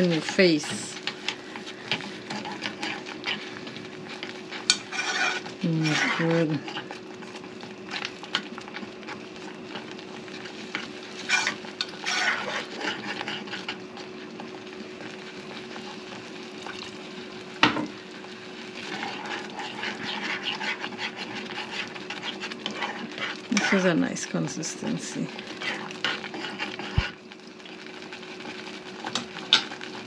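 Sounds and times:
spoon scraping saucepan: 4.5 - 6.8, 11.2 - 13.7, 18.9 - 23.9.

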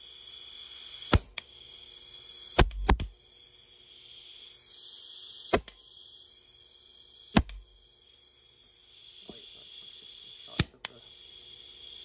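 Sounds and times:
compressed air blaster firing: 1.1 - 1.4, 2.5 - 3.1, 5.3 - 5.9, 7.3 - 7.8.

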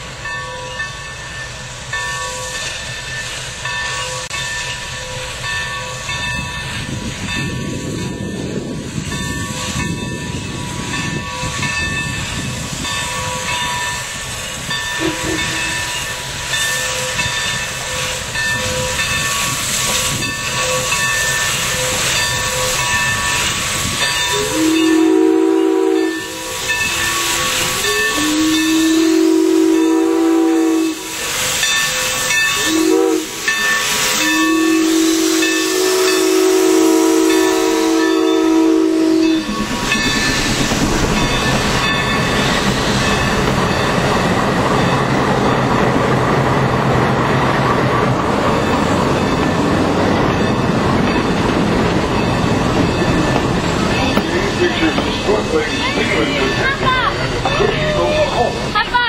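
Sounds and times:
steam train rolling with hiss: 0.0 - 59.0
train chime whistle blasts: 14.7 - 39.6.

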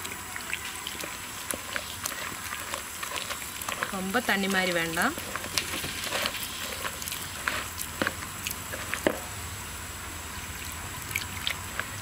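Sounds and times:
hand squelching wet batter: 0.0 - 9.3, 10.3 - 12.0.

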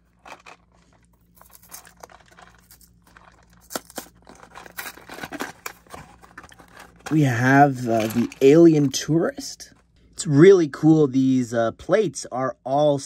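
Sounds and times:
cardboard clicks and crinkles: 0.1 - 9.0
cardboard box being opened: 4.3 - 8.5.

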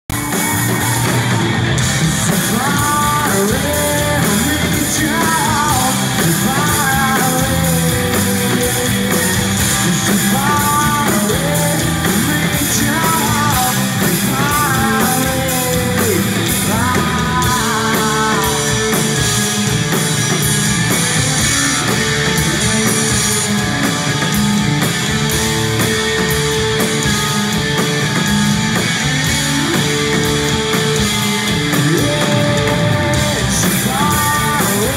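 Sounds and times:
live rock band playing: 0.0 - 34.9
man singing: 0.8 - 19.2, 30.0 - 34.9.

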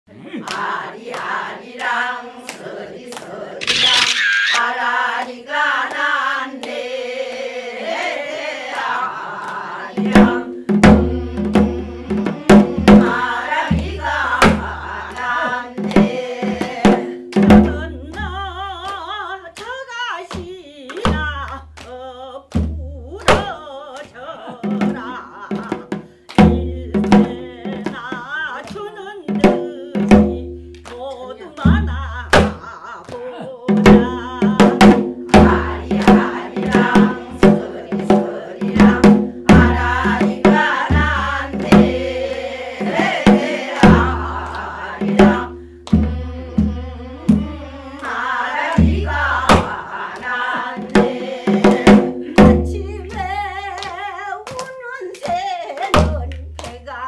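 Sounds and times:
steady drum beat: 7.9 - 19.2, 24.5 - 54.1.

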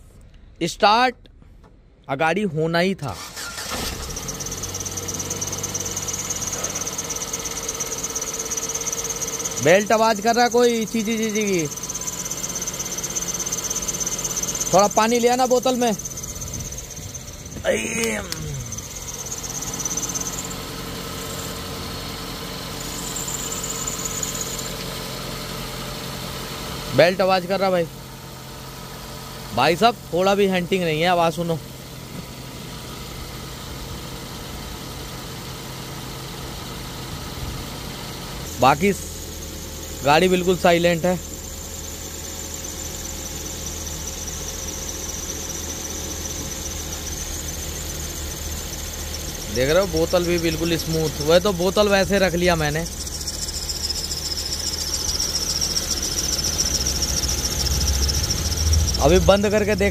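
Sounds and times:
drive belt squealing: 3.0 - 59.9
car engine idling: 3.1 - 59.9
steady low hum: 4.7 - 21.9, 38.3 - 59.9.

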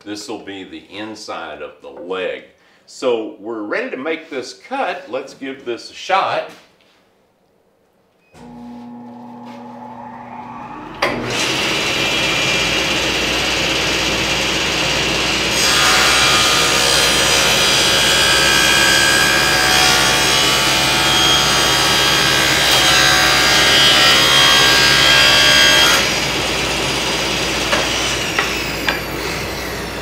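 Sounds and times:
table saw cutting wood: 8.4 - 30.0.

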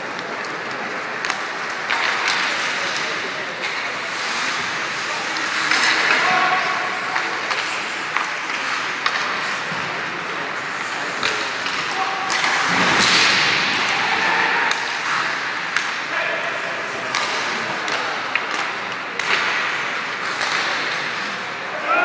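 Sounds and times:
skates scraping on ice: 0.0 - 21.8
hockey sticks clacking on puck: 0.0 - 22.0
puck knocking against boards: 5.6 - 16.0, 17.0 - 21.0.

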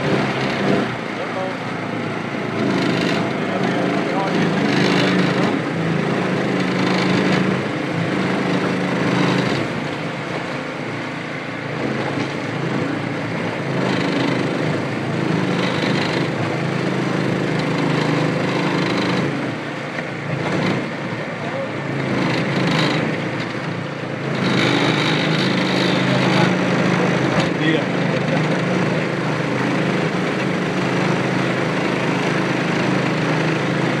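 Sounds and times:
outboard motor running: 0.0 - 34.0
water splashing along hull: 0.0 - 34.0.

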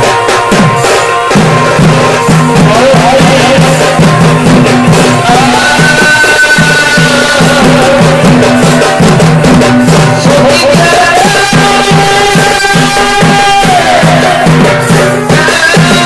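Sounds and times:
barrel drums beaten fast: 0.0 - 16.0
high wind instrument long notes: 0.0 - 16.0.

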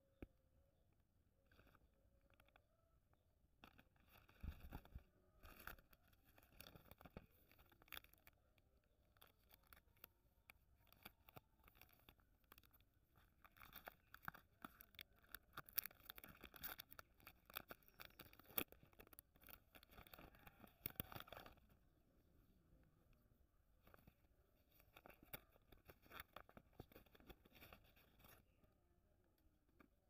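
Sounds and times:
candy wrapper crinkling and tearing: 3.6 - 21.6, 23.8 - 28.5.

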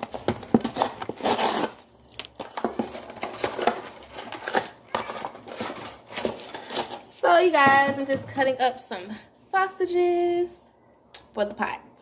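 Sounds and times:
packaging crinkling and rustling: 0.0 - 7.7.

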